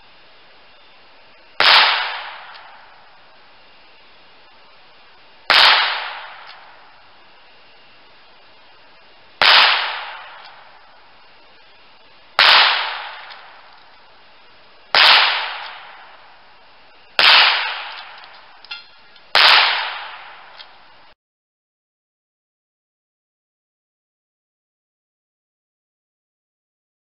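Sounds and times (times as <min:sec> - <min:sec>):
gunshots sharp cracks: 0:01.6 - 0:03.0, 0:05.5 - 0:06.9, 0:09.4 - 0:10.8, 0:12.4 - 0:13.8, 0:14.9 - 0:16.2, 0:17.2 - 0:20.7.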